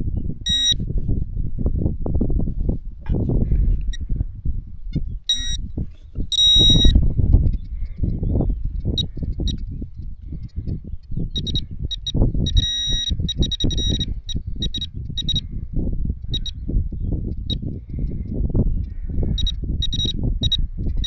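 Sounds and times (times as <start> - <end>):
metal detector beeps: 0.4 - 0.8, 5.3 - 5.6, 6.3 - 7.0, 9.0 - 9.6, 11.4 - 15.4, 16.3 - 16.6, 19.4 - 20.6.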